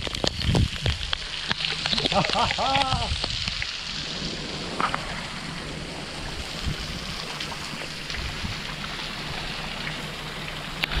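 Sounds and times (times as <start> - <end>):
low rumble: 0.0 - 11.0
water drips: 0.0 - 11.0
waterfall pouring and splashing: 0.0 - 11.0.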